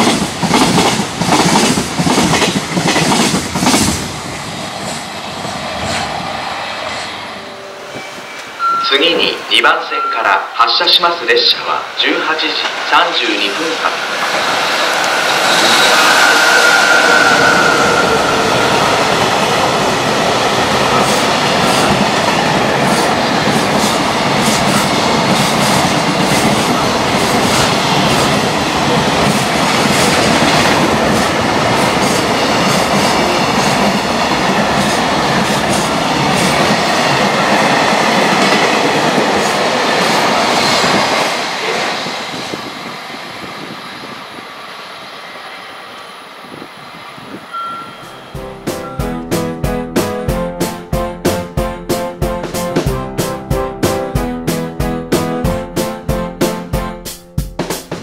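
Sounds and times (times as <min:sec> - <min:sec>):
freight train wheels clattering: 0:00.0 - 0:06.3.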